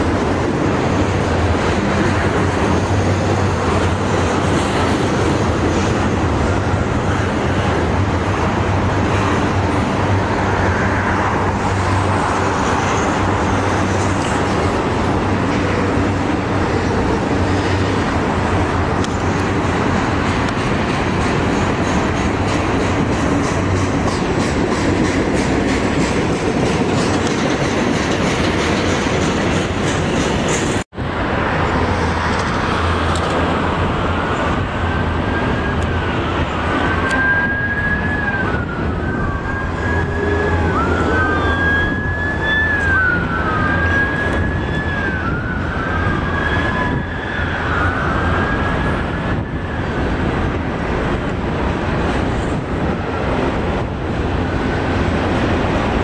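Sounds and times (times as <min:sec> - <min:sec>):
train rolling past: 0:00.0 - 0:56.0
siren wailing: 0:34.7 - 0:50.2.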